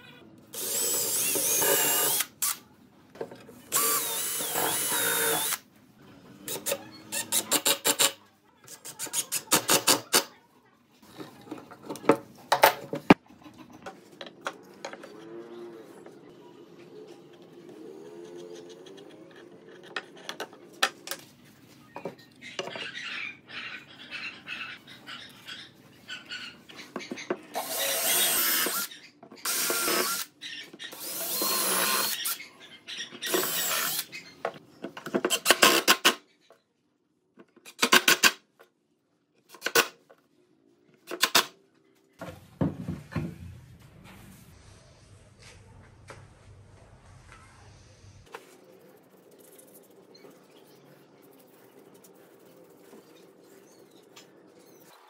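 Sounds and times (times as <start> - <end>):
cordless drill boring into wood: 0.6 - 2.5, 3.7 - 5.6, 27.6 - 30.3, 30.9 - 32.4, 33.3 - 34.1.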